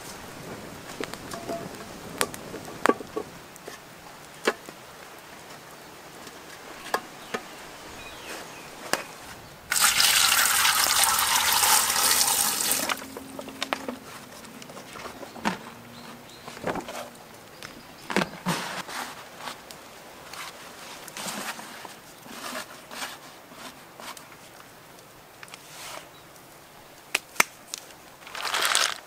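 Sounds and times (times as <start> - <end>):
water pouring: 9.7 - 13.1.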